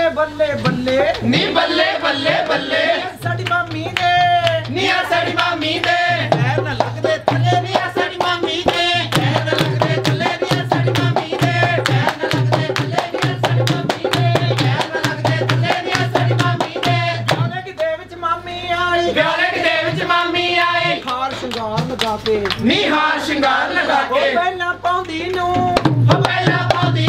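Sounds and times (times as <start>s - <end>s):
hands clapping: 3.4s - 4.8s, 5.4s - 18.0s, 21.0s - 22.6s
hand drum beat: 5.4s - 17.6s, 21.0s - 22.4s, 25.5s - 27.0s.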